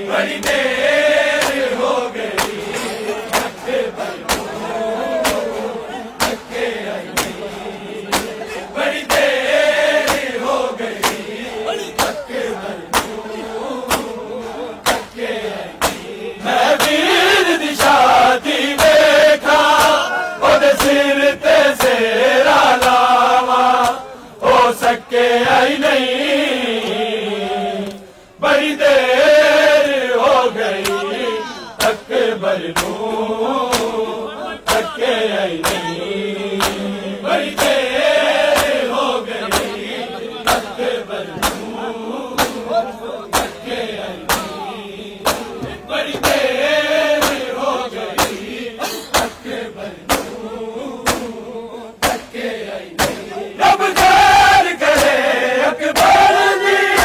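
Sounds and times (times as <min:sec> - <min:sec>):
men chanting in unison: 0:00.0 - 0:57.0
chest beating slaps: 0:01.4 - 0:13.2, 0:13.8 - 0:14.2, 0:14.8 - 0:15.2, 0:15.8 - 0:16.1, 0:31.8 - 0:32.1, 0:32.7 - 0:33.0, 0:33.7 - 0:34.0, 0:34.6 - 0:35.0, 0:35.6 - 0:36.0, 0:36.6 - 0:36.9, 0:37.5 - 0:37.8, 0:38.4 - 0:39.8, 0:40.5 - 0:46.5, 0:47.2 - 0:51.4, 0:52.0 - 0:55.3.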